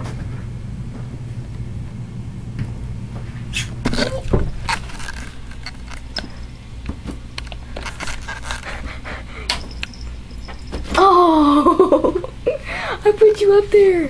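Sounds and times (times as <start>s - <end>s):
steady low hum: 0.0s - 14.0s
rustling and scraping: 3.1s - 9.0s.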